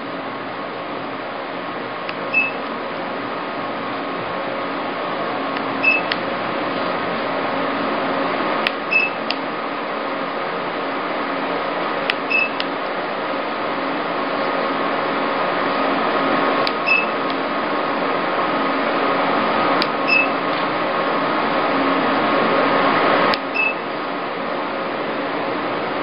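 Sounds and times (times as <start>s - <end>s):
machine running hum: 0.0s - 26.0s
short high beep: 2.3s - 2.6s, 5.8s - 6.1s, 8.9s - 9.2s, 12.3s - 12.6s, 20.1s - 20.3s.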